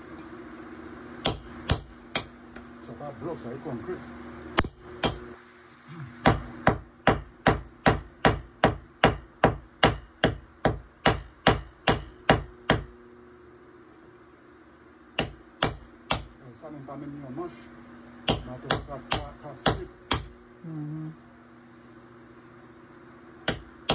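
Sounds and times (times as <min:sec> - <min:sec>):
hammer striking chisel into concrete: 0:01.2 - 0:02.4, 0:04.6 - 0:05.2, 0:06.2 - 0:12.9, 0:15.2 - 0:16.4, 0:18.2 - 0:20.4, 0:23.5 - 0:23.9.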